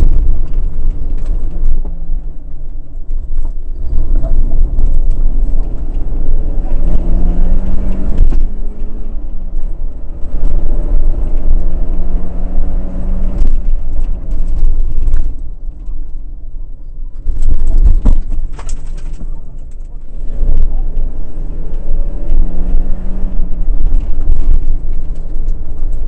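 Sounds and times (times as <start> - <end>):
rally car engine pulling hard: 0.0 - 16.3, 17.1 - 26.0
sharp knocks and clatter: 17.1 - 21.1.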